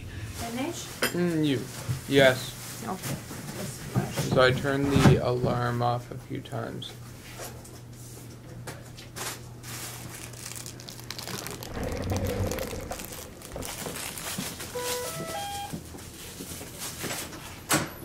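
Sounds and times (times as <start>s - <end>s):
rustling and handling noise: 9.0s - 17.6s
short electronic beeps: 14.8s - 15.7s.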